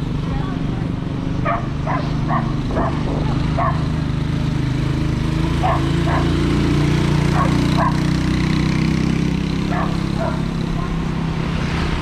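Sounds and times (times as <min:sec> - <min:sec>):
low engine drone: 0:00.0 - 0:08.0
dog barking: 0:01.4 - 0:03.9, 0:05.6 - 0:06.4, 0:07.3 - 0:08.1, 0:09.7 - 0:11.0.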